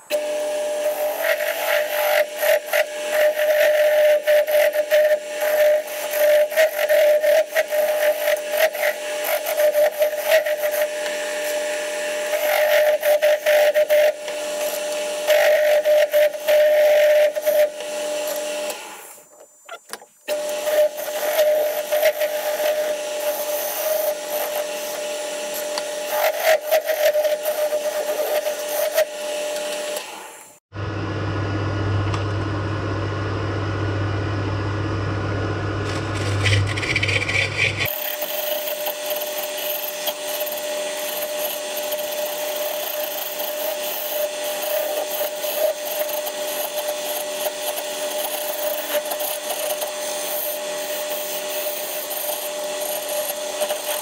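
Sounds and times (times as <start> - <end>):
lathe whine: 0.0 - 19.4, 20.3 - 54.0
turning tool scraping wood: 0.1 - 30.2, 35.8 - 54.0
low hum: 30.8 - 37.9.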